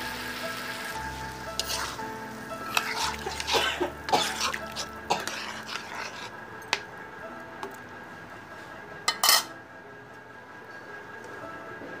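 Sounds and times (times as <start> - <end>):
spatula scraping in a pan: 1.2 - 6.8.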